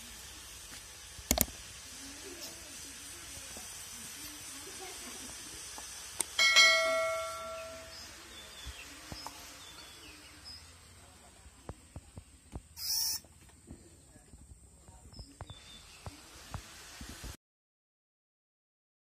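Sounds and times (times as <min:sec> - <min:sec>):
struck ringing tone: 0:06.4 - 0:08.1
short sharp hiss: 0:15.5 - 0:17.4.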